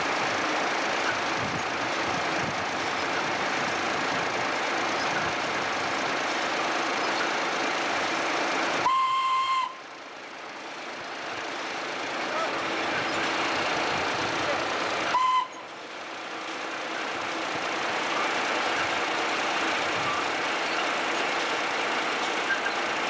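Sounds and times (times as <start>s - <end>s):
belt-driven machinery running: 0.0s - 8.9s, 9.8s - 23.0s
high whistle: 8.8s - 9.8s, 15.1s - 15.6s.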